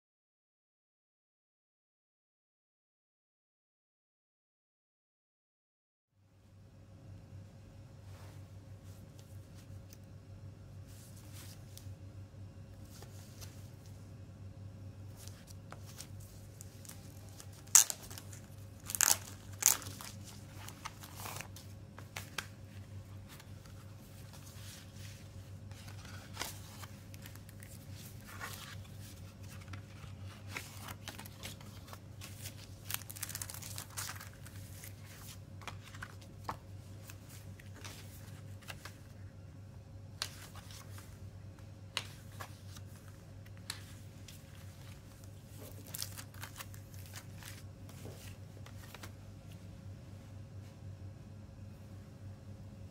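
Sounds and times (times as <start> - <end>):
card and paper rustling: 15.1 - 39.2, 40.2 - 41.2, 41.9 - 49.6
plastic crinkling: 16.0 - 21.6, 25.9 - 36.3, 45.2 - 48.2
plastic wrap ripping: 16.8 - 20.1, 32.7 - 34.5.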